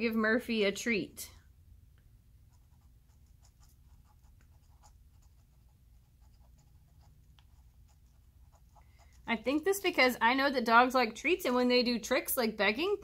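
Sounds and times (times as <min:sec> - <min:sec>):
pen scratching on paper: 0:02.5 - 0:09.4.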